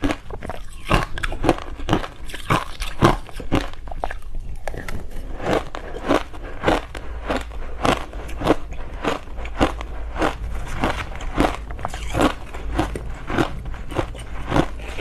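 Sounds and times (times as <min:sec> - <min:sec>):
crunching ice in mouth: 0:00.0 - 0:15.0.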